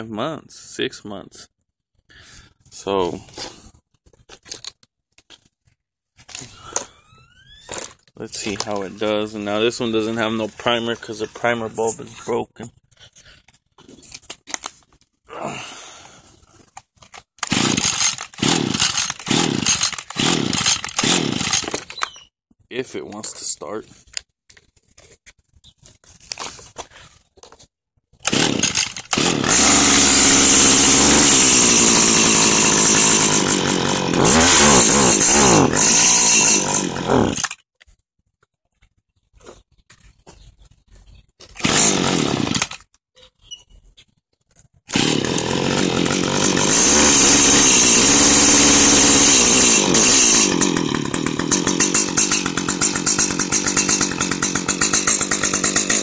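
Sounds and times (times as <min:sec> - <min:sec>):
hedge trimmer engine revving: 0:17.4 - 0:22.1, 0:28.2 - 0:37.6, 0:41.6 - 0:42.8, 0:44.9 - 0:56.0.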